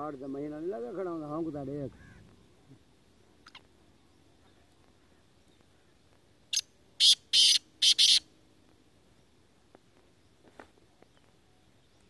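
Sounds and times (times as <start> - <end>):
francolin harsh call: 6.5 - 8.3.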